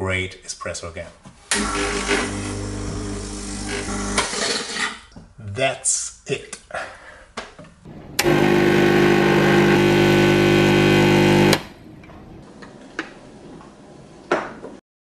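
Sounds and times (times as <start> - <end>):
espresso machine pump buzzing: 8.2 - 11.7.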